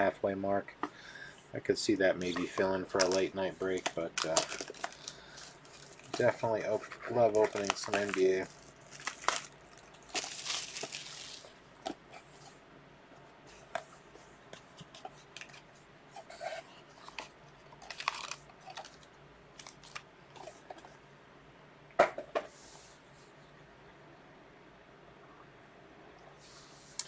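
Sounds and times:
plastic wrapping tearing: 0:02.3 - 0:11.5, 0:17.8 - 0:19.0.

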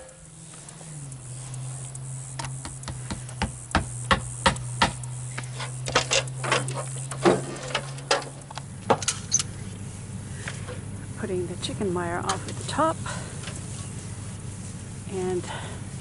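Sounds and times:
steady low hum: 0:00.0 - 0:16.0
hammer tapping on wood: 0:02.6 - 0:05.0.

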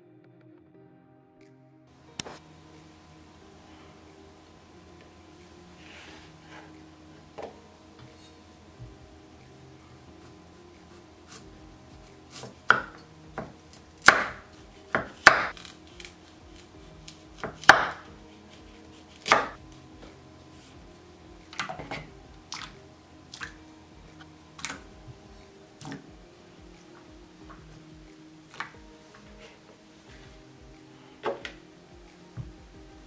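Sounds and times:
knife chopping on wooden board: 0:12.3 - 0:15.7, 0:17.4 - 0:18.0, 0:19.1 - 0:19.6.

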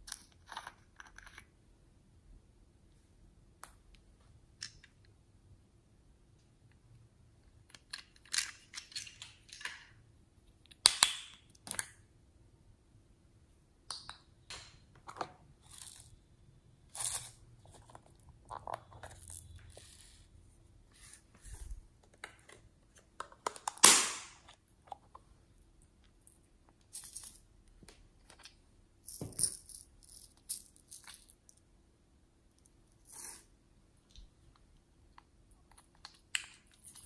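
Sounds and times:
plastic lids clicking and rattling: 0:22.0 - 0:25.2.

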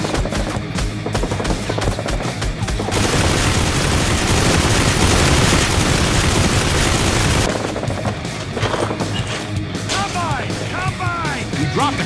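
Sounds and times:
rapid gunfire: 0:00.0 - 0:08.1
rush of blast noise: 0:02.9 - 0:07.5.

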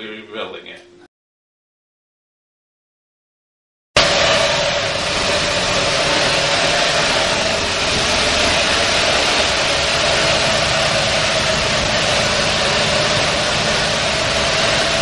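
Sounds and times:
engine running steadily: 0:04.0 - 0:15.0.

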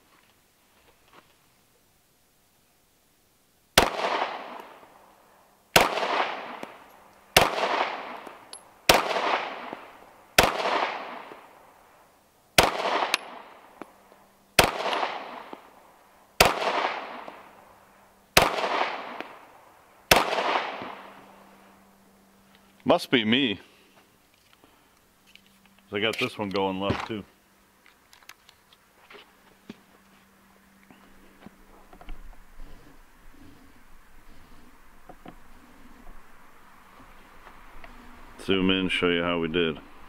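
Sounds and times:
pistol shots with echo: 0:03.8 - 0:04.8, 0:05.8 - 0:06.8, 0:07.4 - 0:11.5, 0:12.6 - 0:13.6, 0:14.6 - 0:15.6, 0:16.4 - 0:17.5, 0:18.4 - 0:19.4, 0:20.1 - 0:21.2.

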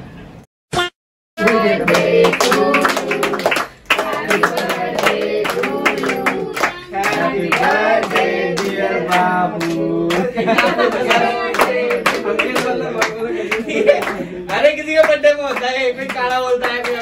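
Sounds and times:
person singing over a beat: 0:01.4 - 0:10.3
clapping: 0:01.4 - 0:17.0.

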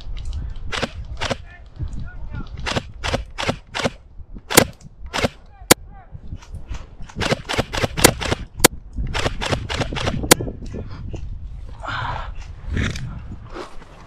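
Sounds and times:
airsoft guns firing: 0:00.7 - 0:01.4, 0:02.6 - 0:05.4, 0:07.2 - 0:10.4.

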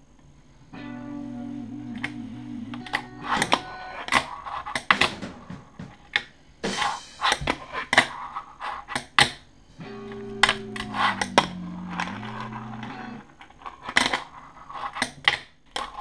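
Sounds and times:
fingerboard clacking: 0:10.0 - 0:13.2.

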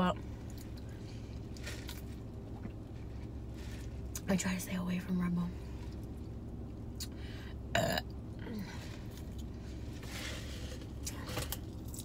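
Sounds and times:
burp: 0:07.7 - 0:08.5.

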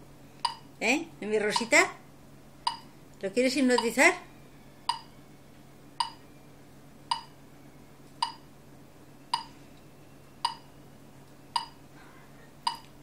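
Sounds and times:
faint steady hum: 0:00.0 - 0:13.0
sharp ringing ticks: 0:01.5 - 0:01.7, 0:02.6 - 0:02.9, 0:04.9 - 0:05.1, 0:06.0 - 0:06.2, 0:07.1 - 0:07.3, 0:08.2 - 0:08.4, 0:11.6 - 0:11.8.

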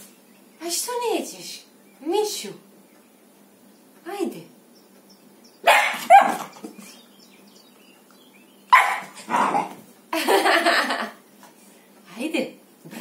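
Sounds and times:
puppy barking: 0:05.6 - 0:06.6, 0:08.7 - 0:09.8.

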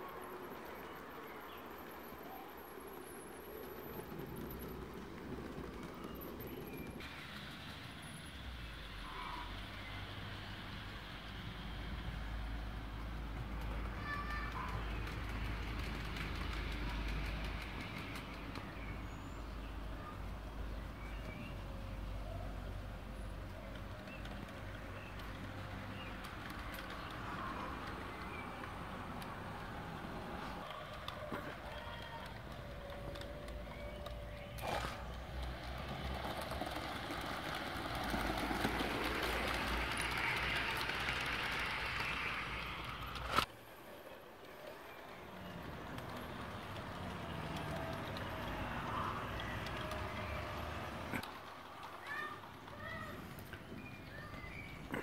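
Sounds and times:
model train rumbling on track: 0:00.0 - 0:55.0
birds chirping: 0:12.8 - 0:55.0.

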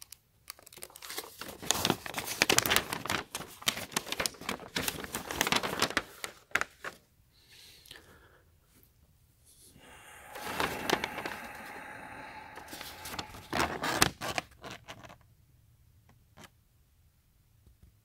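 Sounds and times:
paper rustling and crinkling: 0:00.0 - 0:07.0, 0:10.4 - 0:11.8, 0:12.5 - 0:15.2.

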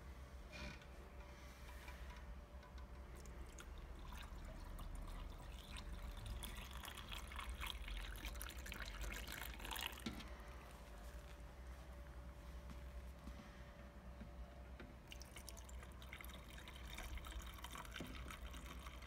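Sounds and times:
water pouring into a tank: 0:03.0 - 0:10.4, 0:15.0 - 0:19.0.

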